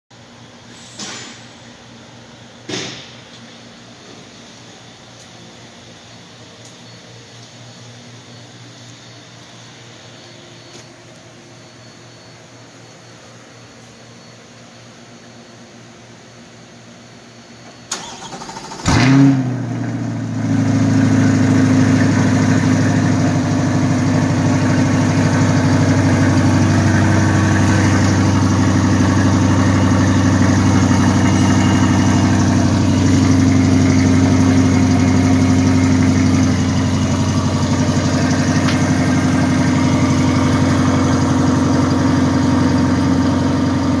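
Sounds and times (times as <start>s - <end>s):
car engine starting and idling: 17.7s - 44.0s.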